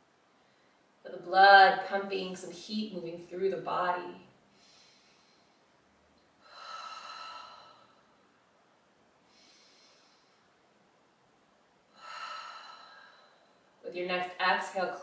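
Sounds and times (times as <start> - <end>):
woman breathing deeply: 4.5 - 8.4, 9.2 - 10.7, 11.9 - 13.8.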